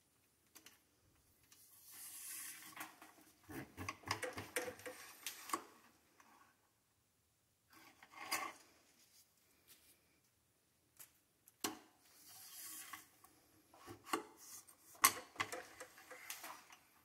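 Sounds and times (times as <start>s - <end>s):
cleaning rod scraping in barrel: 12.2s - 13.2s.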